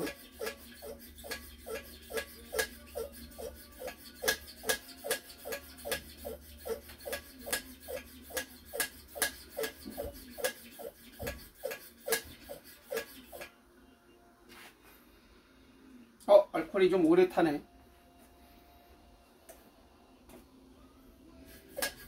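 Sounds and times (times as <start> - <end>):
lantern hand pump strokes: 0.0 - 13.5, 21.5 - 22.0.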